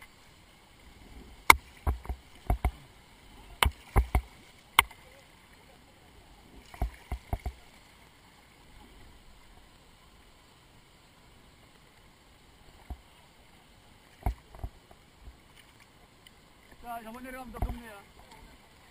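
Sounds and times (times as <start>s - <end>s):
faint wash of water: 0.0s - 18.9s
kayak paddle knocks and taps: 1.4s - 2.8s, 3.5s - 5.0s, 6.7s - 7.6s, 12.8s - 13.1s, 14.2s - 15.4s, 16.2s - 18.4s.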